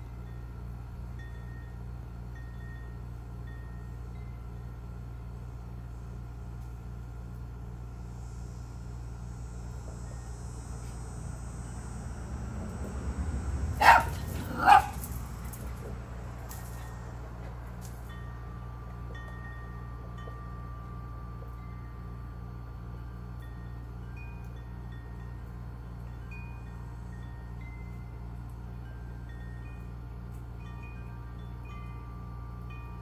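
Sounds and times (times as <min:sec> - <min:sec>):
wind chimes tinkling: 0:00.0 - 0:05.4, 0:10.0 - 0:10.8, 0:13.9 - 0:33.0
small dog barking: 0:13.8 - 0:15.1.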